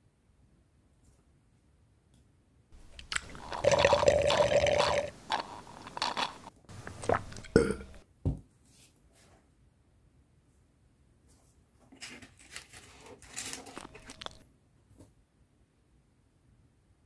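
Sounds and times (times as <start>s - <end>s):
gulping: 2.8s - 8.0s, 13.8s - 14.4s
slurp through a straw: 2.8s - 8.0s, 12.9s - 14.4s
wet mouth clicks: 2.8s - 8.0s, 13.8s - 14.4s.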